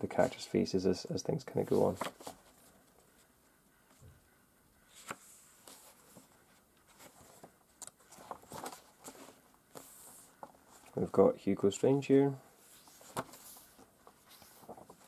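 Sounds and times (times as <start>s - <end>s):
book page turning: 1.6s - 2.7s, 4.9s - 6.3s, 6.9s - 11.2s, 12.7s - 15.0s.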